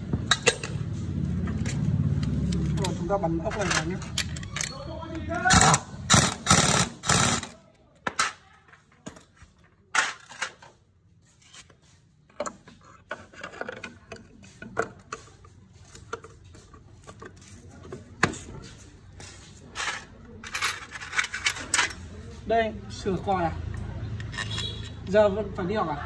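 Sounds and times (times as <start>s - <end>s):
metal clicks and clinks: 1.6s - 5.3s, 23.7s - 25.1s.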